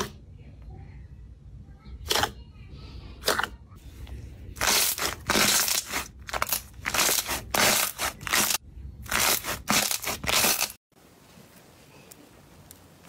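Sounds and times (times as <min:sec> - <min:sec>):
slime squelching and crackling: 0:04.6 - 0:10.8.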